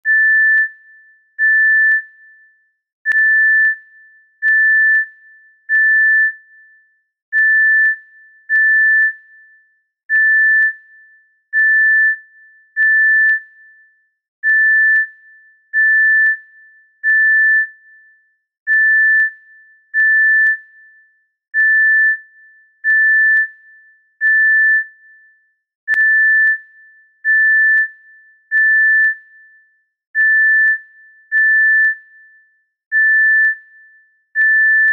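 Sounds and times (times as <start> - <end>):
heart monitor beeping: 0.0 - 0.7, 1.4 - 2.0, 4.4 - 5.0, 7.3 - 9.1, 10.1 - 10.7, 14.4 - 15.0, 18.7 - 19.3, 21.6 - 22.1, 27.2 - 27.9, 28.5 - 29.1, 30.2 - 31.9, 32.9 - 33.6, 34.4 - 34.9.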